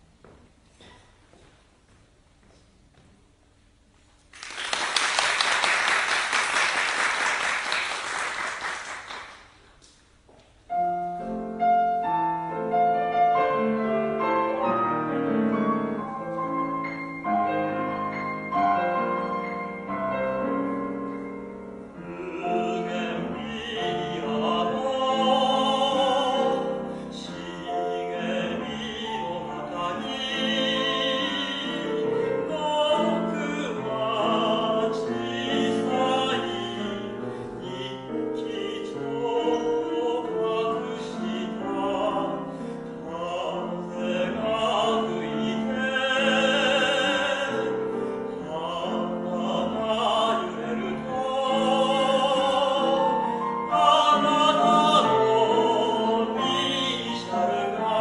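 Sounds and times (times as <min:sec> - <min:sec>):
piano chords and melody: 0:10.7 - 0:58.0
person singing with vibrato: 0:21.2 - 0:58.0.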